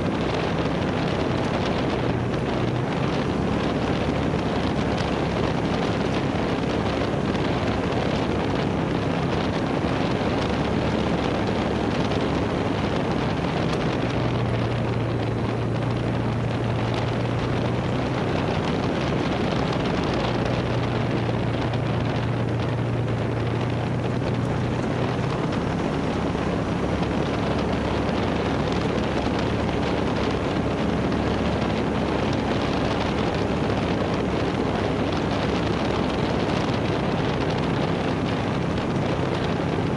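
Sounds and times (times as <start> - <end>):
utility vehicle engine running: 0.0 - 39.9
wind noise on microphone: 0.0 - 39.9.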